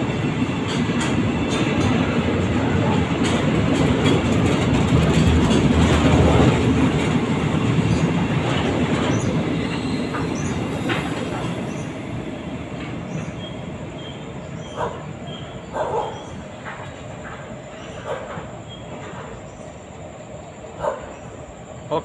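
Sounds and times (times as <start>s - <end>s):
freight train rolling past: 0.0s - 22.0s
wheels clicking over rail joints: 0.4s - 11.9s, 14.8s - 19.6s.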